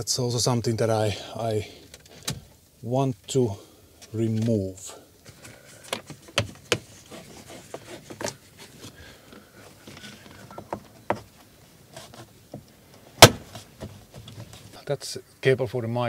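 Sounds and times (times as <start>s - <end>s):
soft rubbing: 5.4s - 12.4s.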